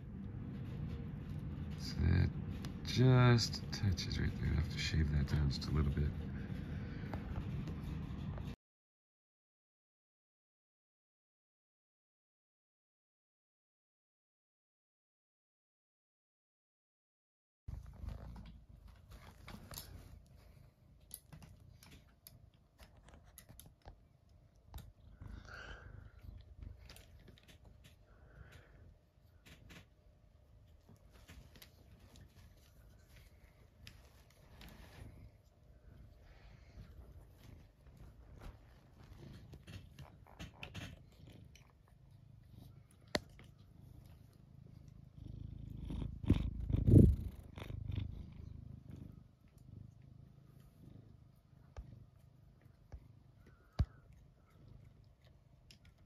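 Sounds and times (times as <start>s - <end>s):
cat purring: 17.7s - 56.0s.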